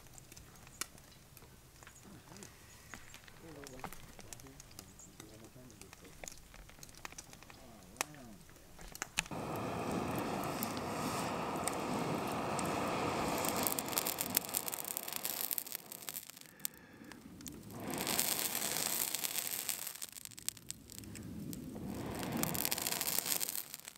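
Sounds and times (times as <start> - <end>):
log crackling and popping: 0.0 - 23.9
rushing noise: 9.3 - 16.4, 20.7 - 23.9.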